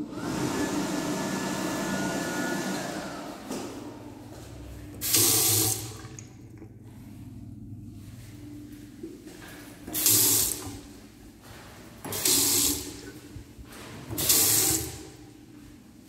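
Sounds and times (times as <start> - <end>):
water gushing into a sink: 5.0 - 6.6, 12.1 - 13.1, 14.1 - 15.1.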